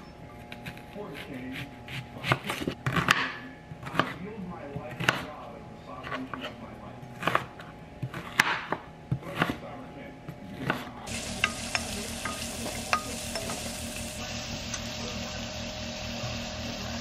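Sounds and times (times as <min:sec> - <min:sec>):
knife chopping on wooden board: 0:01.5 - 0:04.2, 0:04.8 - 0:05.3, 0:07.2 - 0:09.6
wooden spoon stirring: 0:11.1 - 0:13.8
onion sizzling in frying pan: 0:11.1 - 0:17.0.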